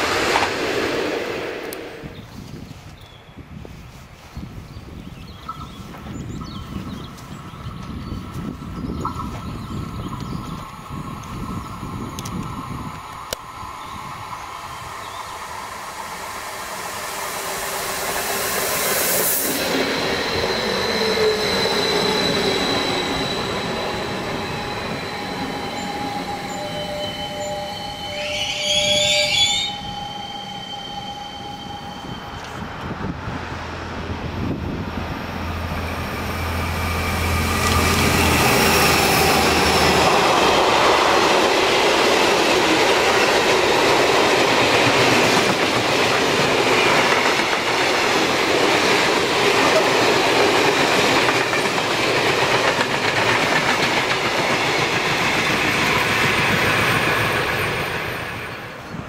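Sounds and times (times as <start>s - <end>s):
electric train whining: 0.0s - 2.3s, 5.5s - 59.0s
freight train rumbling past: 0.0s - 2.8s, 5.3s - 59.0s
train brakes squealing: 13.6s - 32.9s, 35.8s - 41.0s.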